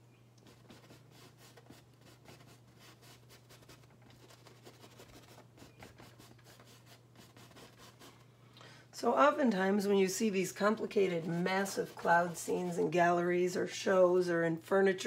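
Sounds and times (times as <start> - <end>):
faint low hum: 0.0 - 15.0
brush scratching on canvas: 0.4 - 8.2, 10.6 - 13.3.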